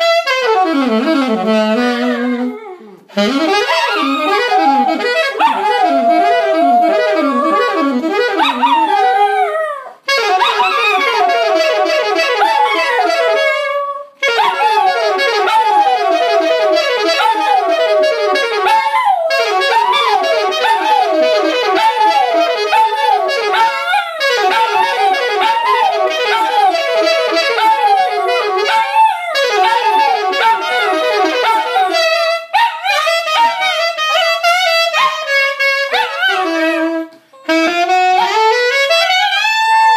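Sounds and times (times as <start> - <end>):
alto saxophone blues line: 0.0 - 39.9
dog howling: 3.6 - 35.3.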